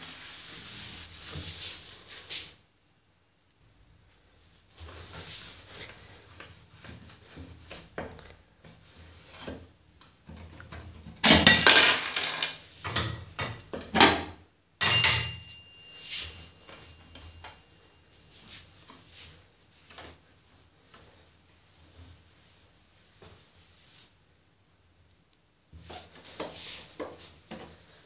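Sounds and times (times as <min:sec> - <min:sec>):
rubbing and handling: 0:00.0 - 0:02.6, 0:15.5 - 0:24.4
metal burner parts clinking: 0:11.4 - 0:13.7, 0:14.8 - 0:15.7.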